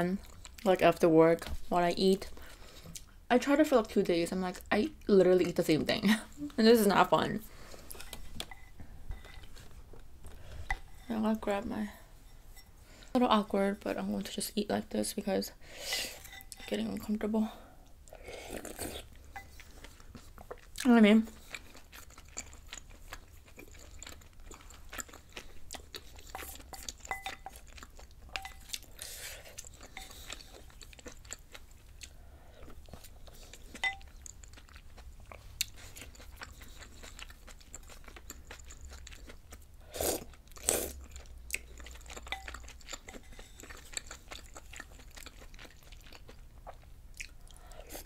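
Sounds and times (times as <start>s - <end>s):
person chewing: 0.2s - 0.7s, 17.8s - 48.0s.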